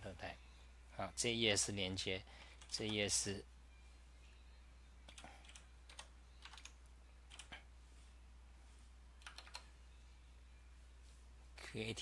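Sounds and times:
faint keyboard keystrokes: 5.0 - 7.6, 9.2 - 9.7.

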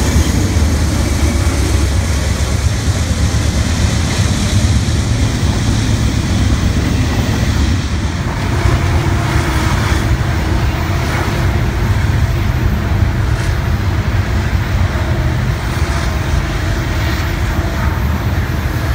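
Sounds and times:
freight train wheels rumbling: 0.0 - 18.9.

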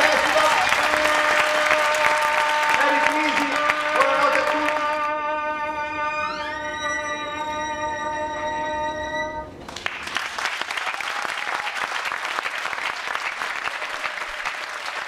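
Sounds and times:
audience applauding: 0.0 - 5.1, 9.6 - 15.0
live music held note: 0.0 - 9.7.

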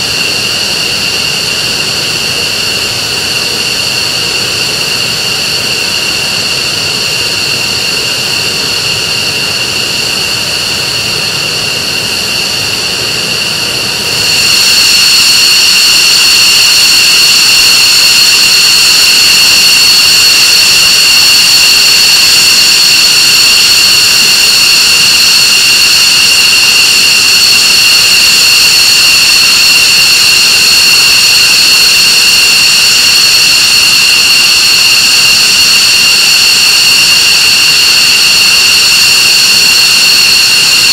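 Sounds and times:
jet engines high whine: 0.0 - 40.9.

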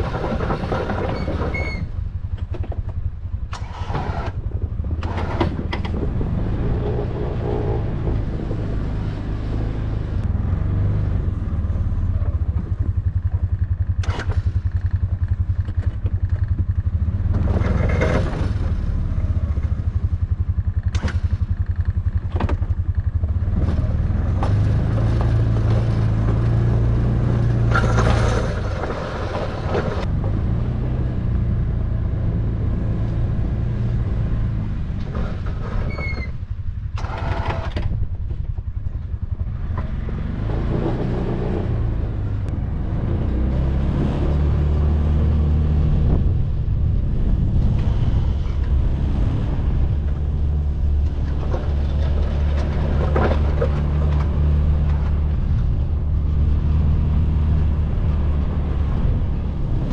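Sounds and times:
plow blade pushing snow: 0.0 - 59.9
vehicle engine running under load: 0.0 - 59.9.

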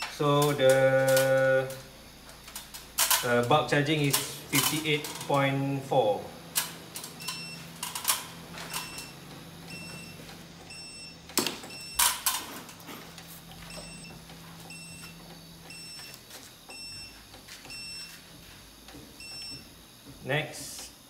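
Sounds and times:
keypad beeping: 0.0 - 1.8, 6.6 - 12.2, 13.6 - 18.2, 19.2 - 19.7.

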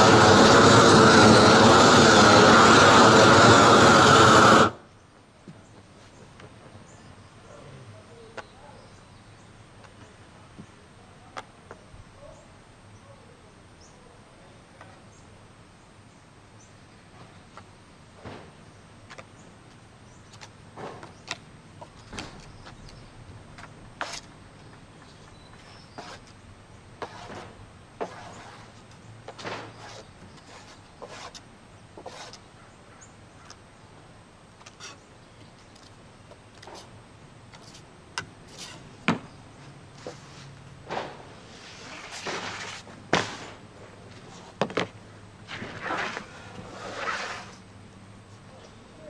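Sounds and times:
faint outdoor ambience: 0.0 - 49.0
trowel scraping and knocking: 23.6 - 24.3, 25.6 - 26.4, 27.0 - 31.4, 32.0 - 32.4, 38.5 - 38.9, 40.9 - 43.6, 45.5 - 47.6.

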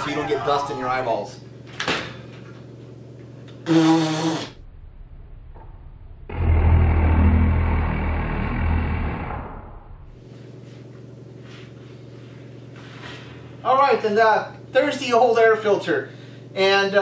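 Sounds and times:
loud low rumbling: 4.1 - 10.2.

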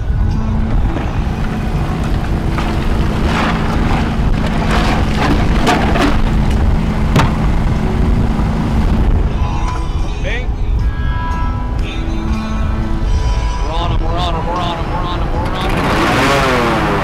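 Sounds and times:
boat motor running: 0.0 - 10.8, 11.6 - 17.0
sharp knocks: 2.1 - 7.6.

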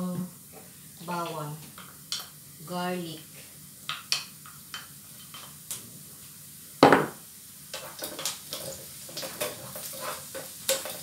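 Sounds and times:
onions frying in a pan: 0.0 - 11.0
spatula scraping a pan: 7.8 - 11.0.

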